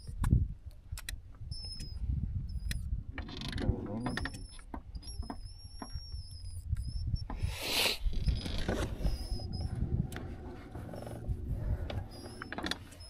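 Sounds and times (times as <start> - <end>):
clicks and creaks: 0.0 - 13.0
trolling motor whining: 1.5 - 13.0
low rumble: 6.4 - 13.0.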